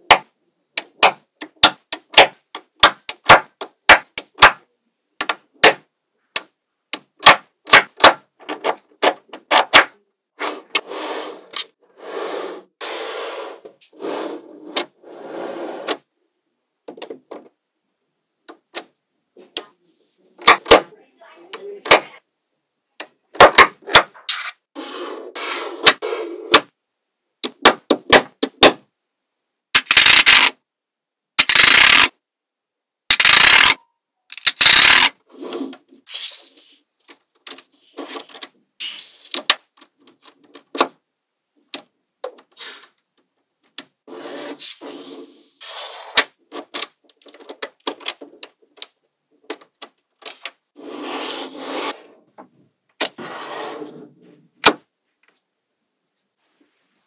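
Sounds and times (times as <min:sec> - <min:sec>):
magnetic balls clicking together: 0:29.8 - 0:30.6, 0:31.4 - 0:32.2, 0:33.1 - 0:35.2.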